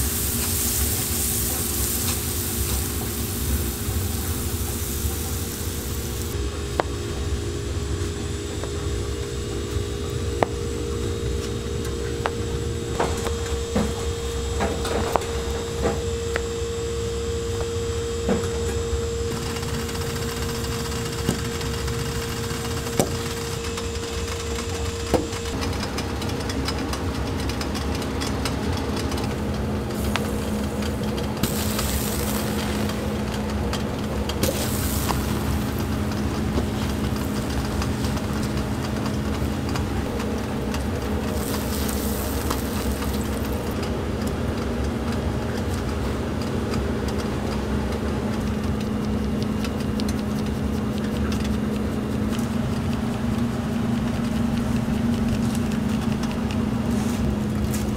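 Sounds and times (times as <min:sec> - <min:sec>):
bread sizzling on a griddle: 0:00.0 - 0:06.4, 0:30.0 - 0:33.4, 0:34.4 - 0:38.5, 0:41.2 - 0:43.7
low hum: 0:00.0 - 0:57.9.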